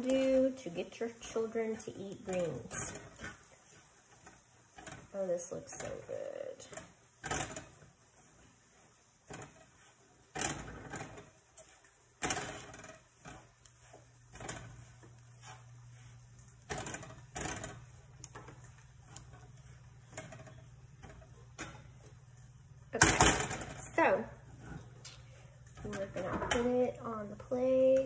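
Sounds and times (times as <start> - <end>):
metal tongs clacking against a pan: 0.0 - 7.9, 8.9 - 22.4.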